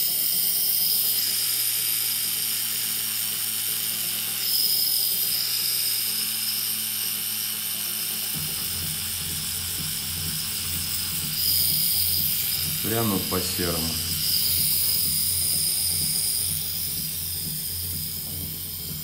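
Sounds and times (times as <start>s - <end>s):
tattoo machine humming: 0.0s - 19.0s.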